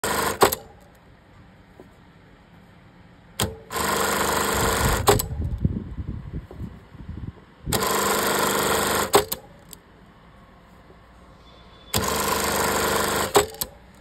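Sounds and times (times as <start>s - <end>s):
sewing machine running: 0.0s - 0.6s, 3.7s - 5.2s, 7.7s - 9.4s, 11.9s - 13.7s
sewing machine clicks: 7.7s - 9.5s, 12.0s - 13.8s.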